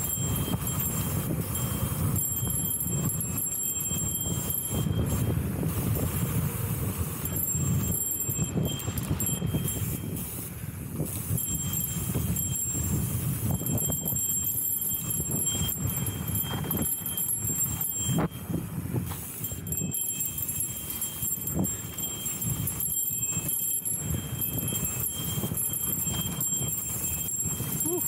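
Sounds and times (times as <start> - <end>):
bike rattling and knocking: 0.0 - 10.2, 10.9 - 28.0
high thin tones: 7.0 - 28.0.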